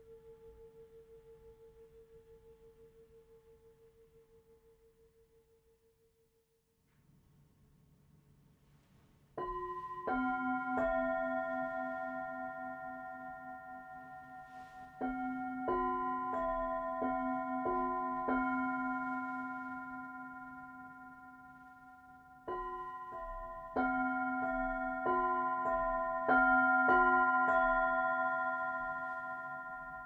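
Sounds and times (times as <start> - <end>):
singing bowls ringing: 9.4 - 30.0.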